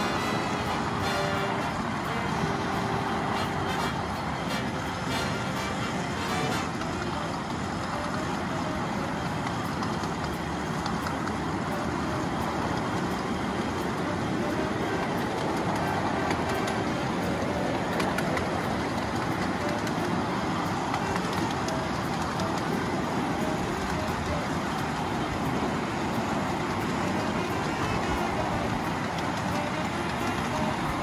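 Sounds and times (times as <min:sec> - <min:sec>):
rumble of wheels on rail: 0:00.0 - 0:31.0.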